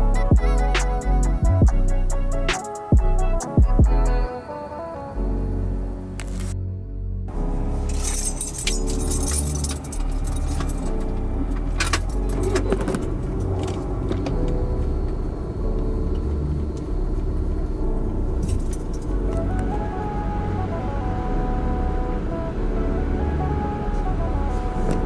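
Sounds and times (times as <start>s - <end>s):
car road rumble: 5.2s - 25.0s
jangling and rattling: 7.9s - 14.4s, 18.4s - 19.1s.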